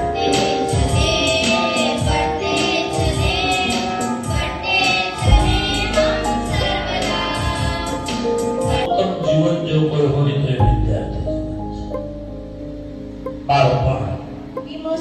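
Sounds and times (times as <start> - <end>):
girls singing into a microphone: 0.0 - 8.9
electronic keyboard: 0.0 - 15.0
steady low beat: 5.2 - 8.9.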